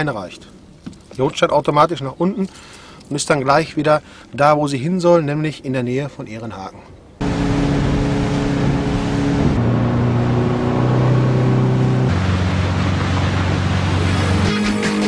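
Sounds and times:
steady rushing noise: 7.2s - 14.6s
motorboat engine running: 7.2s - 15.0s.

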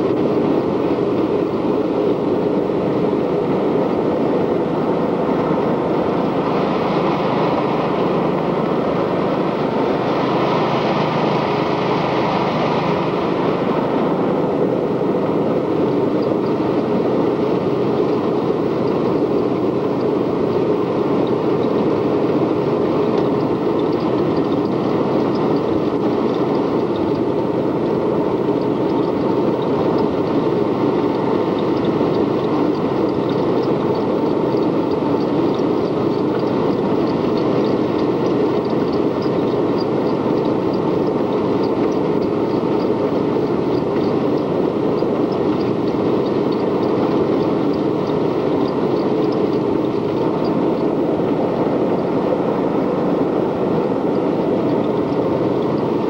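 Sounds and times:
quad bike engine and road rumble: 0.0s - 56.0s.

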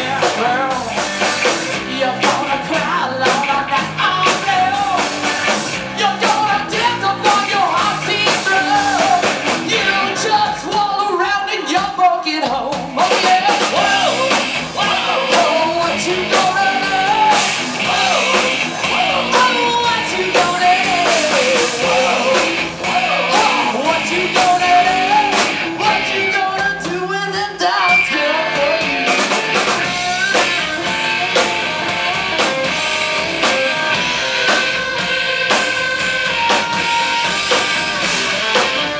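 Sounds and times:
drum kit: 0.0s - 38.9s
electric guitars: 0.0s - 38.9s
woman singing: 6.0s - 30.9s.

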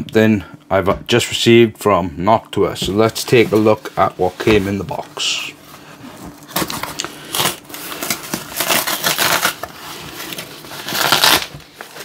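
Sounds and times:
tape ripping off cardboard box: 6.4s - 12.0s.

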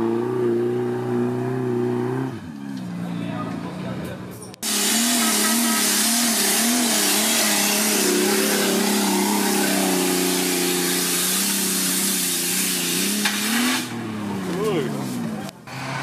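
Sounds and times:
off-road vehicle engine revving: 0.0s - 16.0s
loud hiss: 4.6s - 14.0s.

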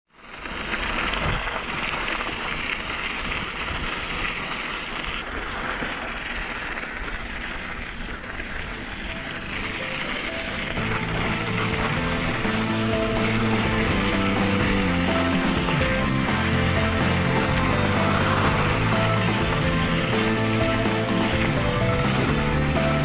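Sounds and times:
bike tyres rolling over gravel: 0.1s - 23.0s
wind on microphone: 1.0s - 2.2s, 2.8s - 4.4s.

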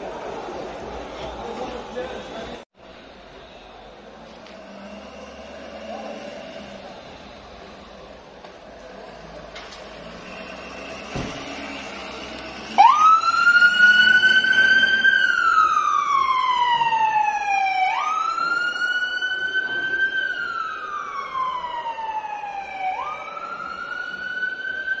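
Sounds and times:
ambulance siren wailing: 10.0s - 25.0s.

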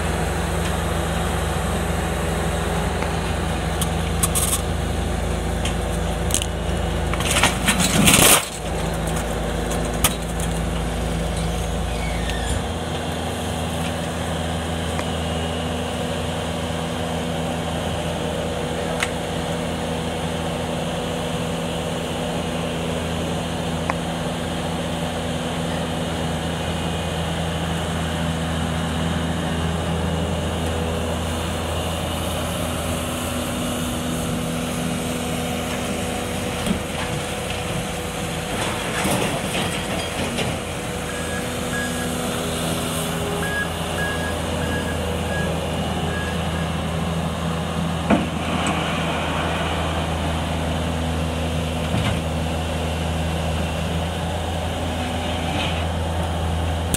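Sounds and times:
loader diesel engine running: 0.0s - 56.9s
reversing alarm beeping: 41.1s - 42.2s, 43.4s - 46.8s.

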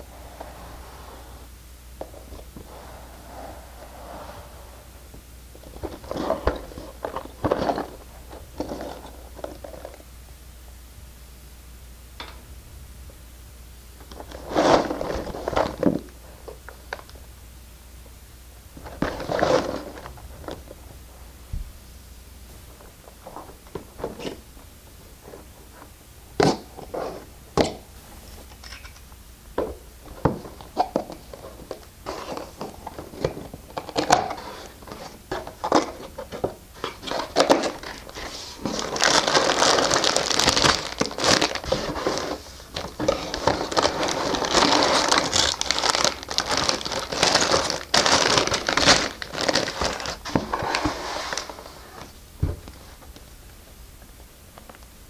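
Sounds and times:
plastic bags clicking and rustling: 5.6s - 10.0s, 30.1s - 51.6s
plastic crinkling and crumpling: 30.4s - 52.0s.

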